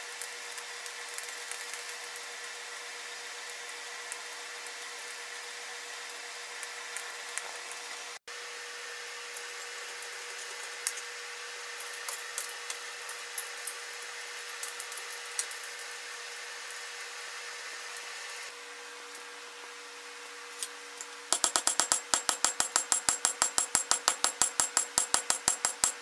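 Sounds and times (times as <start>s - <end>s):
tools clinking on steel table: 21.3s - 26.0s.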